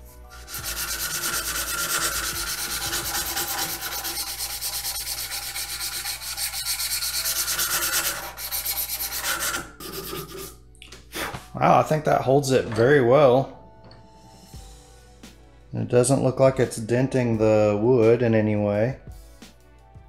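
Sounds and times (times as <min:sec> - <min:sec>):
sandpaper rasping on wood: 0:00.0 - 0:10.6.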